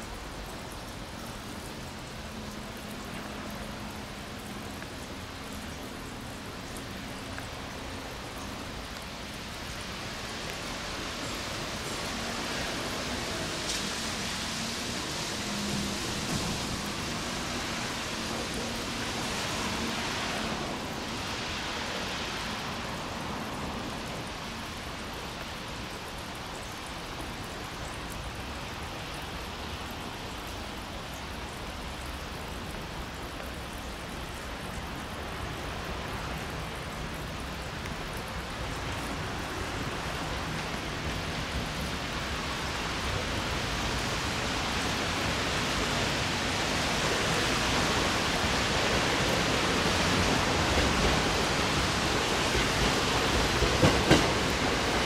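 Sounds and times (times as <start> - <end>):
light rain hissing: 0.0 - 55.0
electric train low hum: 11.0 - 21.8, 45.3 - 55.0.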